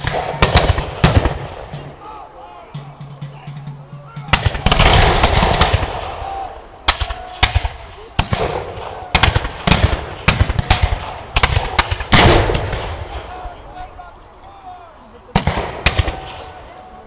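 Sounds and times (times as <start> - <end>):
muskets firing: 0.0 - 2.0, 4.2 - 13.6, 15.3 - 16.6.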